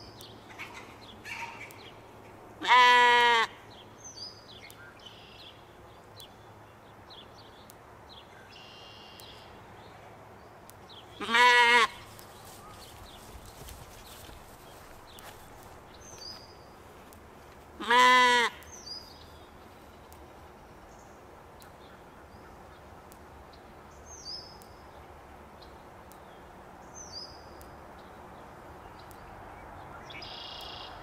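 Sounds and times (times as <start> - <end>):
outdoor background noise: 0.0 - 31.0
sheep bleating: 2.6 - 3.6, 11.2 - 12.1, 17.8 - 18.6
bird chirps: 8.4 - 9.5, 30.0 - 31.0.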